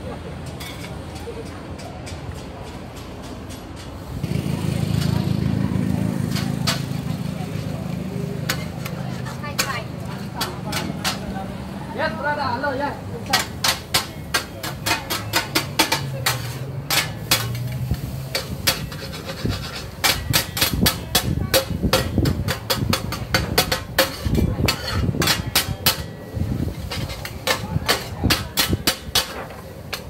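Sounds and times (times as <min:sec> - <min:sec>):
metal spatulas scraping steel pan: 0:06.2 - 0:07.1, 0:08.4 - 0:11.3, 0:13.2 - 0:30.0.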